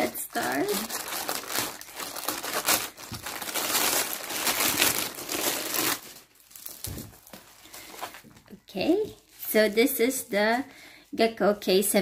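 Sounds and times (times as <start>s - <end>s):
plastic mailer crinkling: 0.0s - 8.4s.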